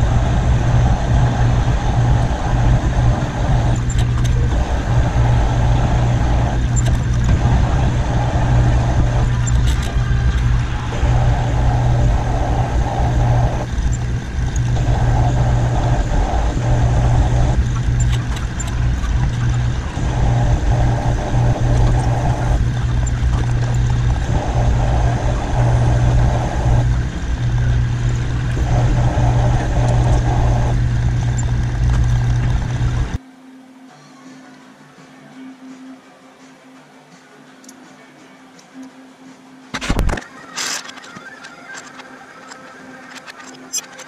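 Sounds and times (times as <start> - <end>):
rough higher machine noise: 0.0 - 33.2
shop machinery humming: 0.0 - 33.8.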